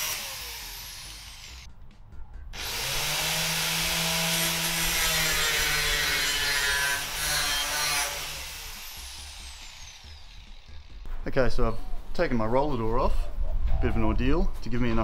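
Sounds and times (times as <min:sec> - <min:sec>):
power tool grinding metal: 0:00.0 - 0:01.7, 0:02.6 - 0:11.1.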